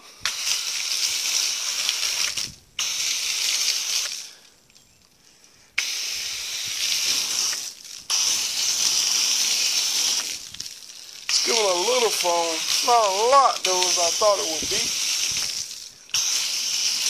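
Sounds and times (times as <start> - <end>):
foam gun spray hissing: 0.2 - 4.4, 5.8 - 17.0.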